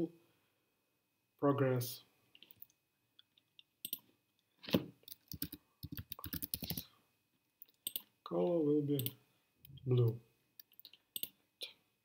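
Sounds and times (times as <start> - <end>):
keyboard typing: 3.8 - 4.1, 5.0 - 6.8, 7.6 - 8.1.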